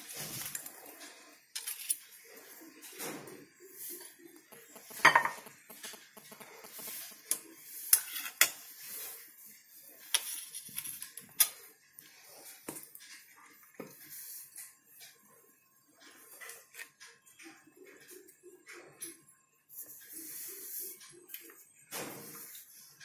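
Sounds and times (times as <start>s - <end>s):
metal jar knocking against bowl: 4.9s - 5.5s.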